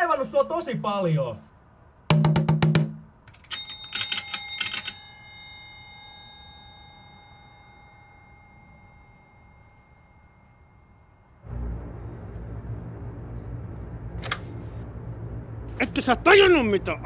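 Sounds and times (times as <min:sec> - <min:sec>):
metal bell struck and ringing: 0:03.5 - 0:11.4.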